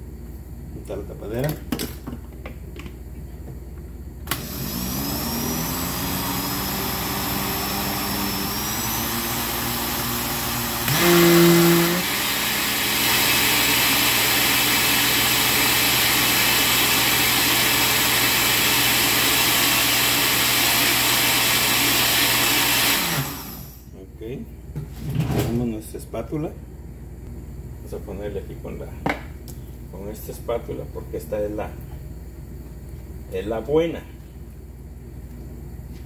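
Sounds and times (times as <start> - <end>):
blender motor running: 4.3 - 23.8.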